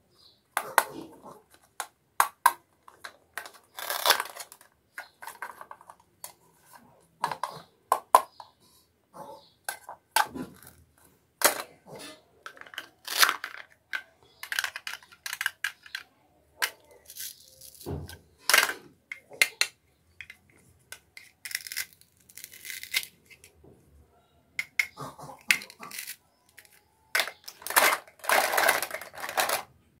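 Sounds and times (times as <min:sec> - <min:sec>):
hook-and-loop ripping apart: 0:21.4 - 0:23.1.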